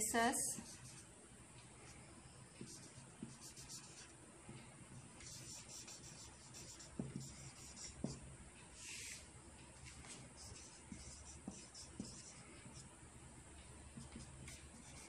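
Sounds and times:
marker scratching on paper: 0:00.6 - 0:01.0, 0:02.6 - 0:04.1, 0:05.2 - 0:08.2, 0:08.8 - 0:09.2, 0:09.8 - 0:12.8, 0:14.0 - 0:15.0.

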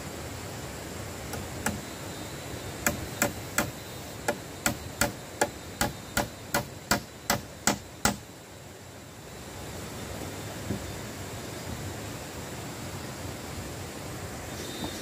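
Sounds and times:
hammer strikes: 0:02.8 - 0:08.2.

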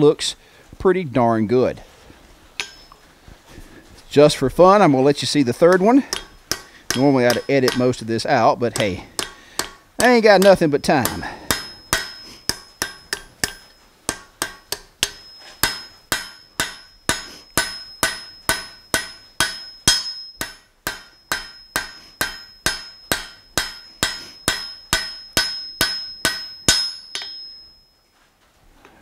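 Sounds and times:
hammer ringing on an anvil: 0:02.6 - 0:03.0, 0:05.7 - 0:08.0, 0:08.8 - 0:27.9.

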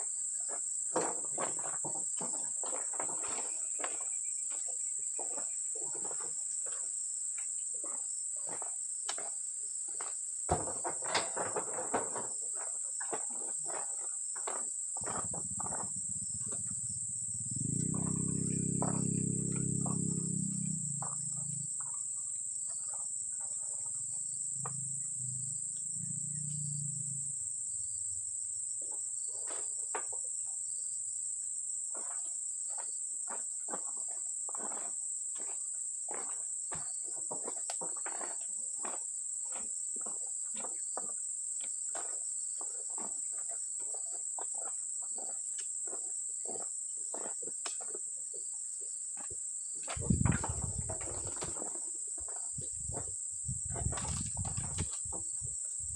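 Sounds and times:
fruit bunches thudding onto truck: 0:10.5 - 0:12.7, 0:49.9 - 0:51.7
high-pitched insect drone: 0:13.1 - 0:29.6, 0:49.2 - 0:55.9.

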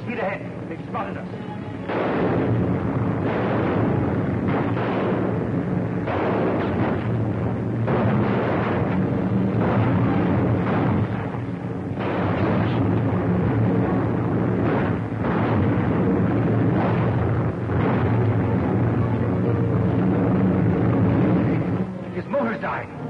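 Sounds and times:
biplane engine drone: 0:00.0 - 0:23.0.

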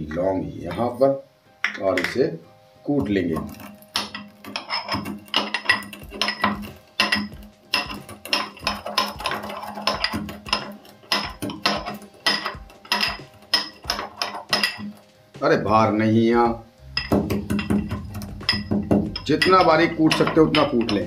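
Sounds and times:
mortar and pestle pounding spices: 0:03.0 - 0:15.1, 0:17.0 - 0:21.0.

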